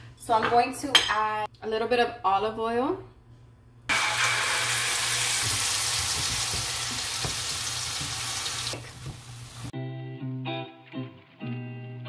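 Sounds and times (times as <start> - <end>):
paste sizzling in oil: 3.9 - 9.7
spatula knocking in pan: 5.2 - 9.7.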